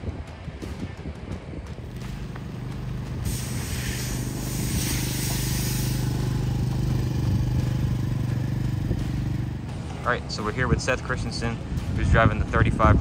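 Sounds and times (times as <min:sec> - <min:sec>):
engine running steadily: 0:00.0 - 0:13.0
hiss: 0:03.2 - 0:06.6.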